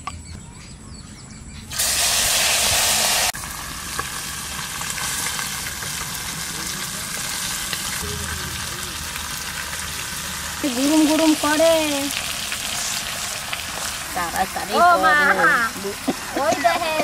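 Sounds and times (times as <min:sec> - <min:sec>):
fish hissing in hot oil: 0:01.8 - 0:08.0, 0:09.2 - 0:14.7
frying sizzle with small pops: 0:03.2 - 0:16.8.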